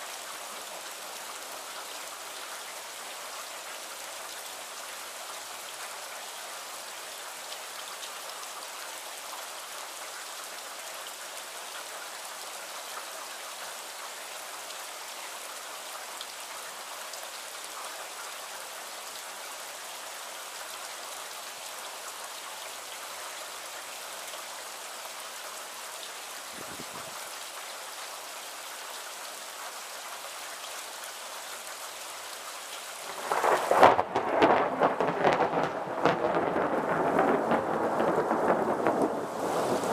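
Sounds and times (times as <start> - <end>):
rain falling: 0.0 - 39.9
thunder clap rumbling: 33.1 - 39.9.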